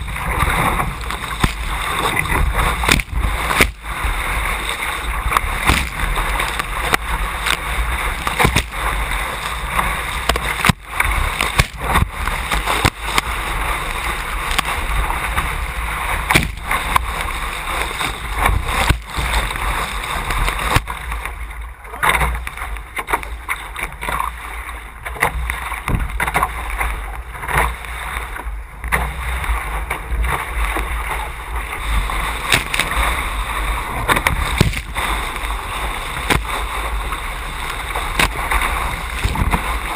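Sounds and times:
water rushing along hull: 0.0s - 39.9s
wind buffeting microphone: 30.9s - 39.9s.

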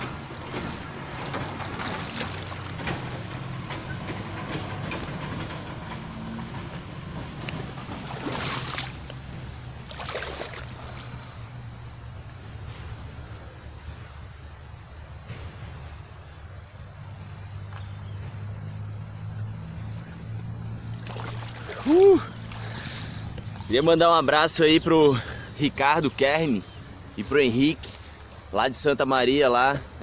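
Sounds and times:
fish splashing in water: 0.0s - 3.8s, 7.5s - 11.4s, 21.0s - 23.6s
river water flowing: 0.0s - 13.3s, 18.8s - 30.0s.

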